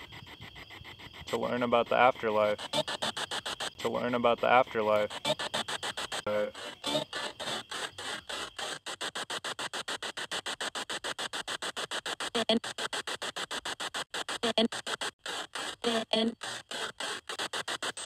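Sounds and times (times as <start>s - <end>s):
chopped radio static: 1.2s - 18.0s
voice-like tone: 1.3s - 2.9s, 3.8s - 5.4s, 6.3s - 7.0s.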